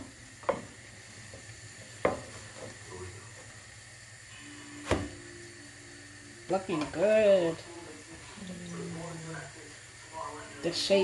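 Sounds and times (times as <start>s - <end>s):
dough sizzling in oil: 0.0s - 8.4s.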